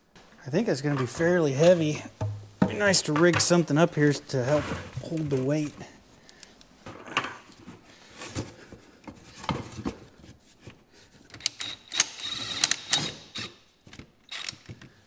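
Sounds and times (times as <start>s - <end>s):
power ratchet whining: 11.5s - 13.6s.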